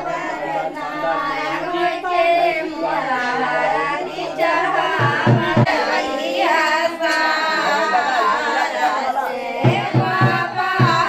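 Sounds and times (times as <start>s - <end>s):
woman singing: 0.0s - 11.0s
fast drum beat: 9.6s - 11.0s.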